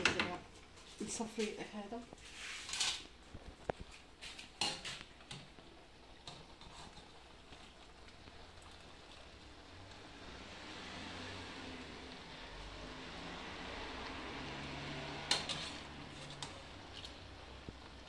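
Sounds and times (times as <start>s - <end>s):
metal pot and strainer clinking: 15.2s - 17.1s.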